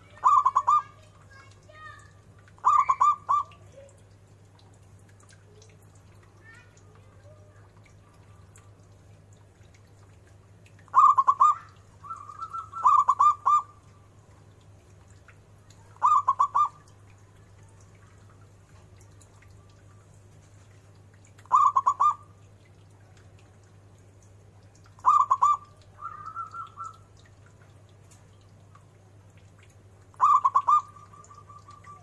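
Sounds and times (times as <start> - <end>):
dove cooing: 0.2 - 1.0, 2.6 - 3.6, 10.9 - 13.7, 16.0 - 16.9, 21.5 - 22.2, 25.0 - 27.1, 30.2 - 32.0.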